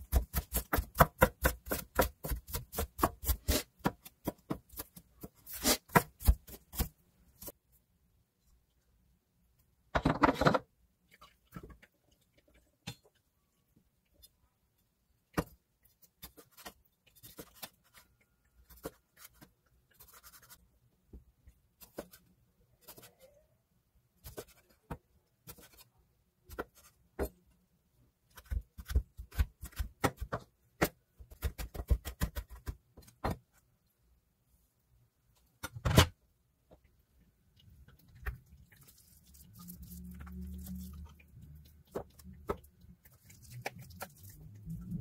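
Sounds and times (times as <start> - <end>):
rapid knife chopping: 0.0 - 4.9.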